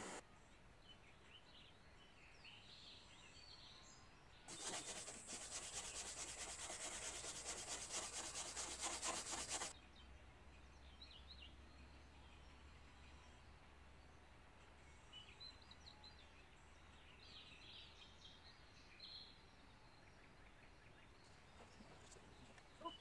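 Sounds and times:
wire brush scrubbing wood: 0.0 - 0.2, 4.5 - 9.7
faint birds chirping: 17.4 - 23.0.

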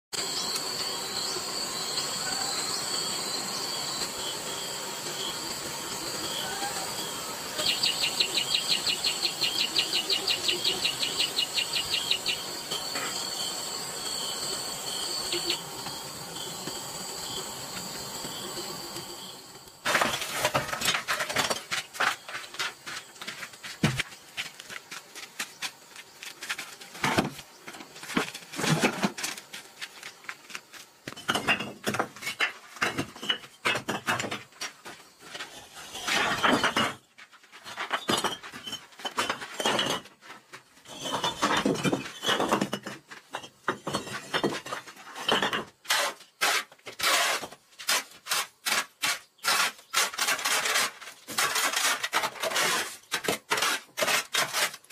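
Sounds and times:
hand tools scraping and knocking: 19.8 - 54.9.

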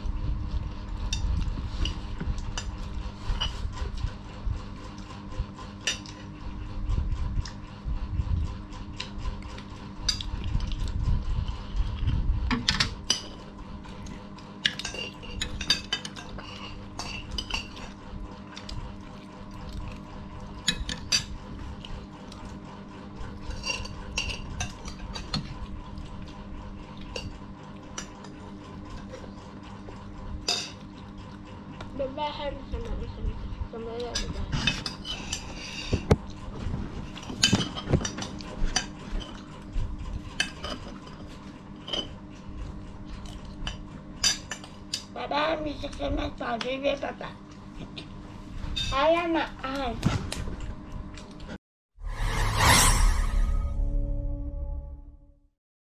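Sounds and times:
low rumble: 52.0 - 55.5.

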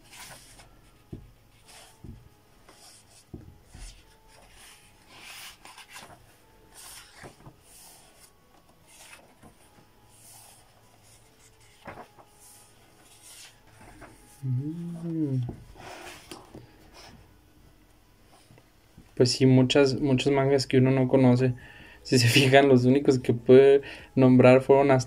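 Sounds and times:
magazine pages turning: 0.0 - 14.4, 15.8 - 16.8.

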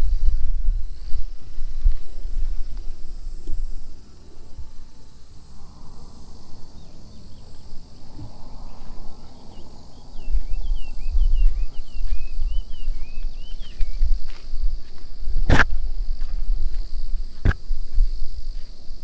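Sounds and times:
low uneven rumble: 0.0 - 17.3
insects droning: 0.0 - 19.0
bird chirping: 4.1 - 14.1.

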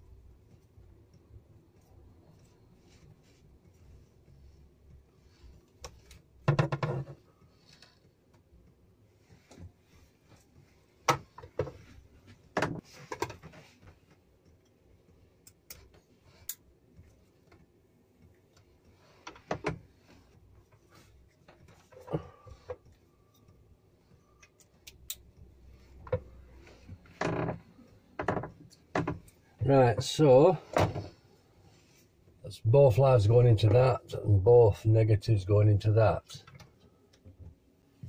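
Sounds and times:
wire connectors clicking: 24.2 - 26.2.

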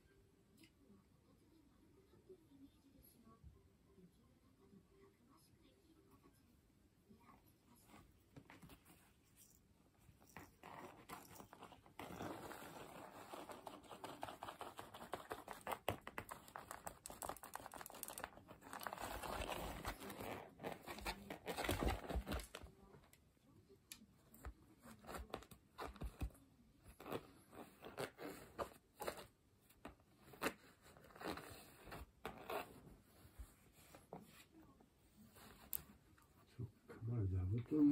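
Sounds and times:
cat claws scratching cushion: 10.2 - 22.7, 24.4 - 34.6.

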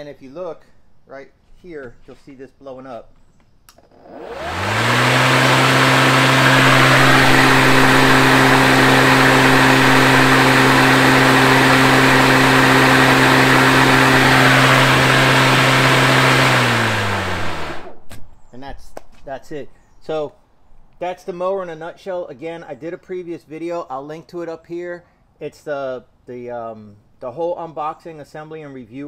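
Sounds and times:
electric lawn mower motor whine: 3.8 - 18.0.

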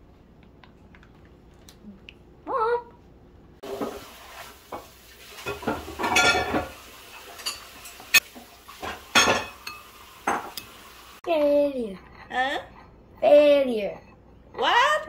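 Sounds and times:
utensils knocking on bowls: 5.4 - 6.8, 8.8 - 10.6.

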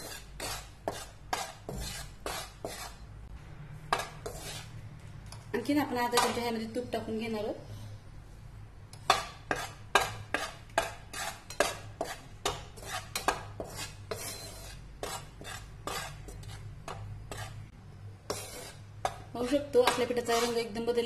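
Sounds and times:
spoon scraping metal pan: 0.0 - 3.0, 3.9 - 4.8, 9.1 - 17.7, 18.3 - 20.7.

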